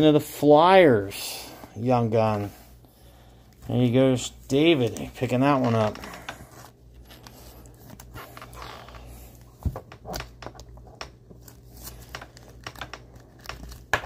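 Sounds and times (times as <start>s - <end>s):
plastic rustling: 3.5s - 14.0s.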